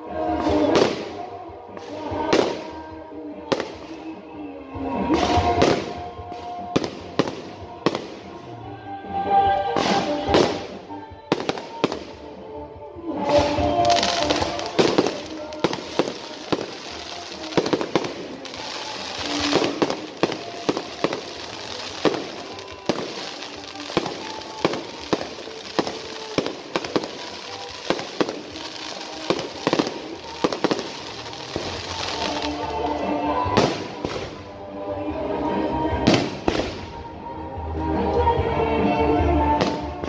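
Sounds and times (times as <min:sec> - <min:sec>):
fireworks crackling: 0:00.2 - 0:02.9, 0:04.8 - 0:08.4, 0:09.7 - 0:12.3, 0:13.2 - 0:34.6, 0:36.0 - 0:37.1
fireworks bangs: 0:13.3 - 0:34.4.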